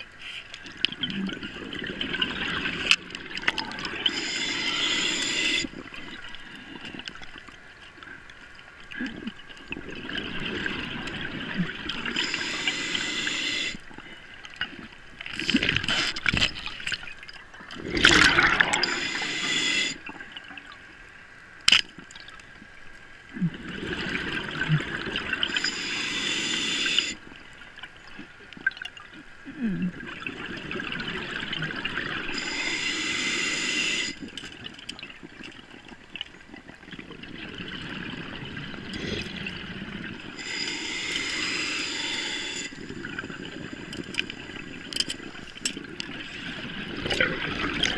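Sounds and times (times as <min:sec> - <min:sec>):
exhaled bubbles gurgling: 0:00.7 - 0:07.6, 0:08.9 - 0:14.1, 0:14.7 - 0:20.8, 0:23.3 - 0:27.3, 0:29.5 - 0:47.9
scuba regulator inhale hiss: 0:04.0 - 0:05.8, 0:12.1 - 0:13.8, 0:18.3 - 0:20.1, 0:25.5 - 0:27.2, 0:32.3 - 0:34.3, 0:40.4 - 0:44.8.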